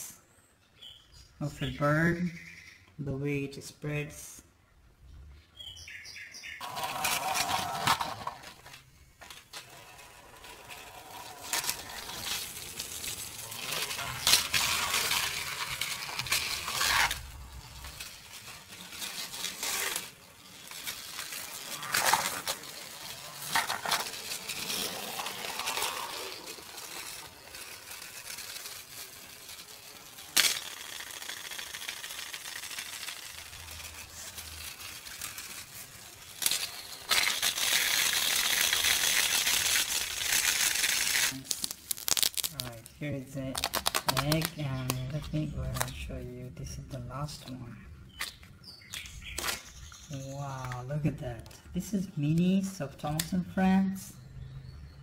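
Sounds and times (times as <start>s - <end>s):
toy train clattering on plastic track: 6.6s - 42.8s, 51.4s - 54.1s.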